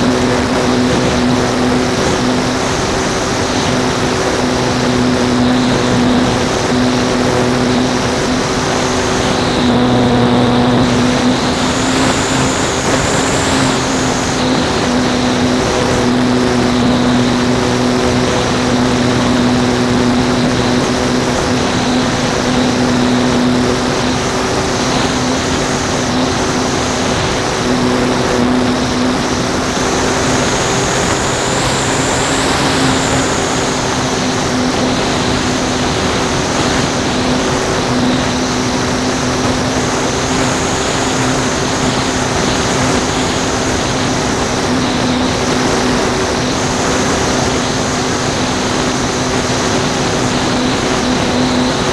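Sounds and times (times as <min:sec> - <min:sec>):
model airplane motor and propeller: 0:00.0 - 0:51.9
wind rushing over microphone: 0:00.0 - 0:51.9.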